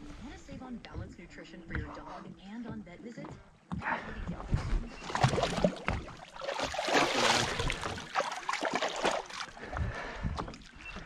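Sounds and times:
water splashing against boat: 4.3s - 11.0s.

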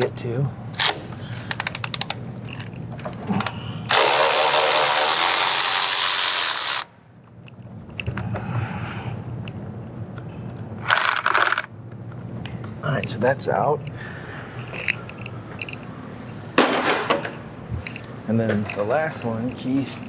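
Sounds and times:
power ratchet spinning: 3.9s - 6.9s, 10.8s - 11.7s
handling sounds: 14.6s - 16.4s.

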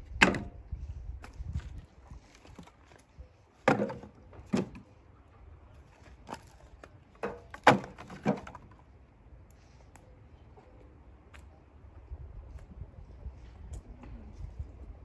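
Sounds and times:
wooden logs knocking: 0.2s - 0.5s, 3.6s - 4.8s, 7.2s - 8.8s.

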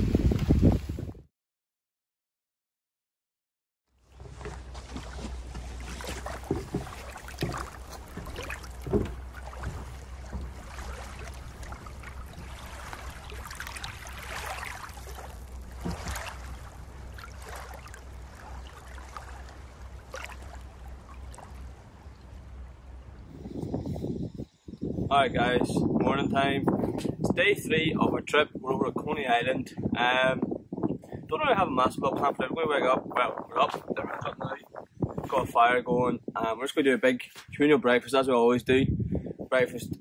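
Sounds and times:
wind rumbling on microphone: 0.0s - 1.3s, 4.1s - 37.9s, 38.5s - 40.0s
water lapping at shore: 3.9s - 23.9s
irregular knocks: 6.4s - 10.7s.

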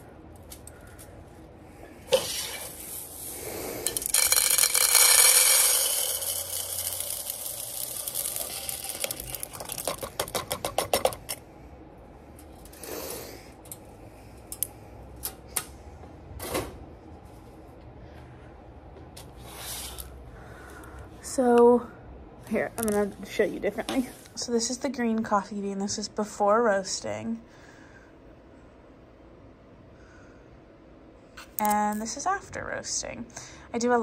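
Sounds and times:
coffee beans pouring rattling: 3.9s - 11.2s.

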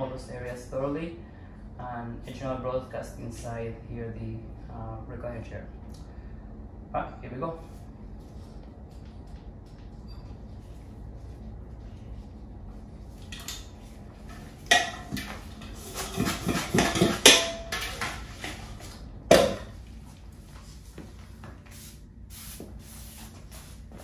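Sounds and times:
hissing spray bursts: 21.7s - 24.0s.

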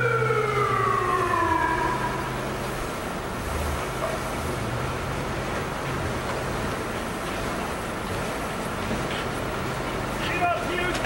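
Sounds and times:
siren winding down: 0.0s - 2.8s.

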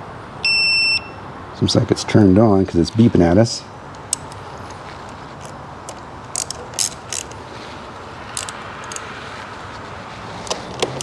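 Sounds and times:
steady background noise: 0.0s - 11.0s
ratchet wrench clicking: 5.4s - 7.4s, 8.3s - 9.2s.

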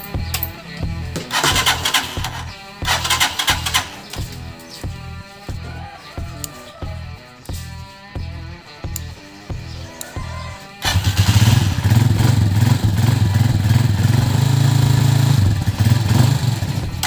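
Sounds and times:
motorcycle engine starting and idling: 0.0s - 5.6s, 10.8s - 17.0s
guitar music: 0.0s - 14.2s.

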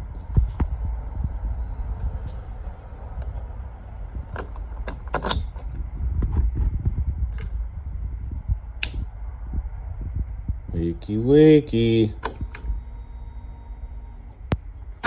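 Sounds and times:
low rumbling handling noise: 0.0s - 15.0s
key clicks and rattles: 3.2s - 3.5s, 4.2s - 5.9s, 7.3s - 7.5s.

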